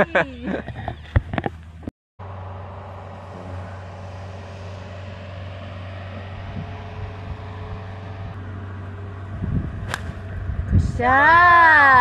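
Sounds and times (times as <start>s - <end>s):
low motor hum: 0.0s - 12.0s
steady whining tones: 2.2s - 11.0s.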